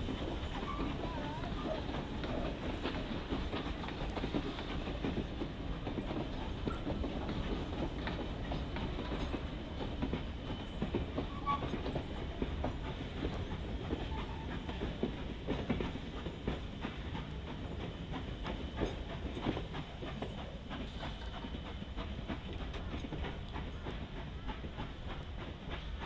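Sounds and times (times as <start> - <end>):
low train rumble: 0.0 - 26.0
train wheels clicking over rail joints: 0.0 - 26.0.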